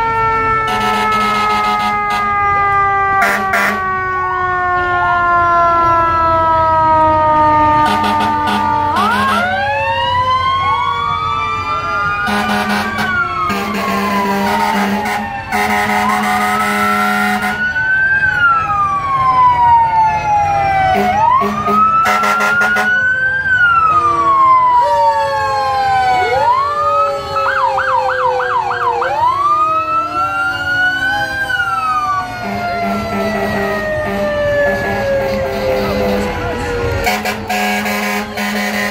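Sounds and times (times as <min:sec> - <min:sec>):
emergency sirens wailing: 0:00.0 - 0:38.9
siren yelp: 0:00.0 - 0:38.9
long horn blasts: 0:00.6 - 0:02.4, 0:03.2 - 0:03.9, 0:07.8 - 0:09.6, 0:12.2 - 0:17.6, 0:20.9 - 0:23.0, 0:32.4 - 0:38.9.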